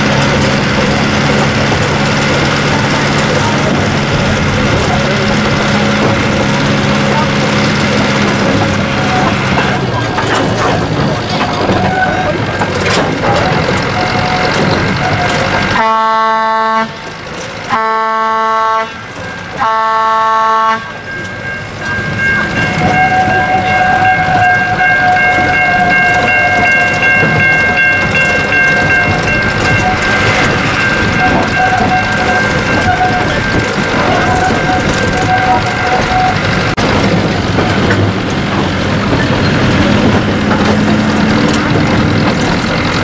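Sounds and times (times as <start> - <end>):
train running noise: 0.0 - 43.0
train horn blasts: 15.0 - 17.1, 17.7 - 19.0, 19.6 - 21.0, 22.7 - 27.9, 28.8 - 36.7.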